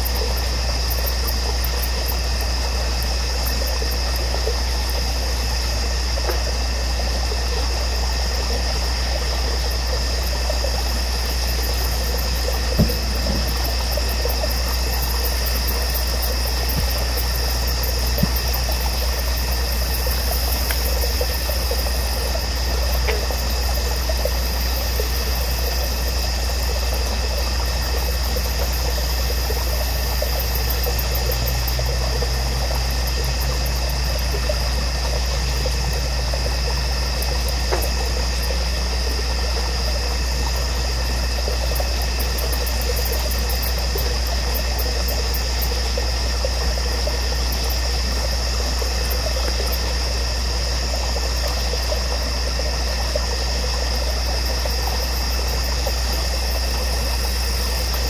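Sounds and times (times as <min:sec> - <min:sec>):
faint knocks: 0:12.8 - 0:13.9.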